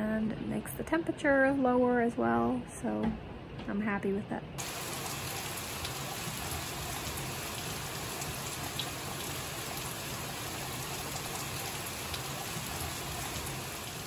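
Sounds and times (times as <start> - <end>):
raindrops tapping: 4.6 - 14.0
steady rain: 4.6 - 14.0.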